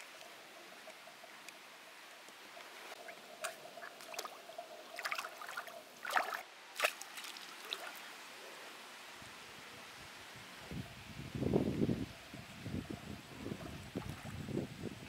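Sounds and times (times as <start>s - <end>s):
feet splashing in shallow water: 3.4s - 4.4s, 5.0s - 8.0s.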